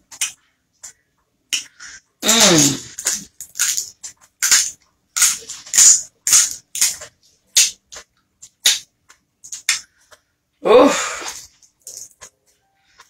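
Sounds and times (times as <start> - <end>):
crab shells cracking: 2.2 - 7.8.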